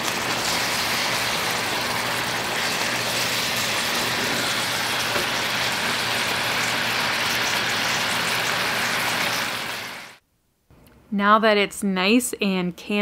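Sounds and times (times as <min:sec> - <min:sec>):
jam sizzling in a frying pan: 0:00.0 - 0:10.2.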